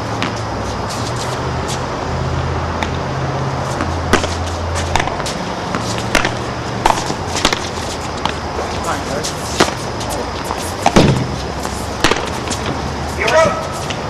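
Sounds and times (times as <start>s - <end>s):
low hum and hiss: 0.0s - 14.0s
padel ball pops off paddles: 4.9s - 7.7s, 12.0s - 12.4s.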